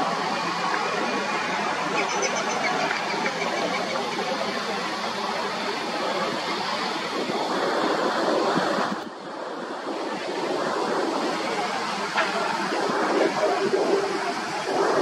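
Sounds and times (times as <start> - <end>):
jet plane passing overhead: 7.1 - 15.0.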